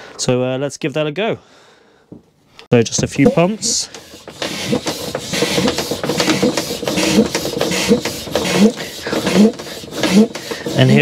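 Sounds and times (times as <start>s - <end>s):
hand pump strokes with squeak: 3.0s - 11.0s.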